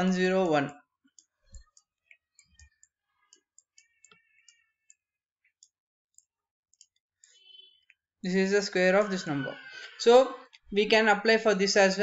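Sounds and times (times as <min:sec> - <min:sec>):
faint scattered clicks: 0:01.1 - 0:08.0.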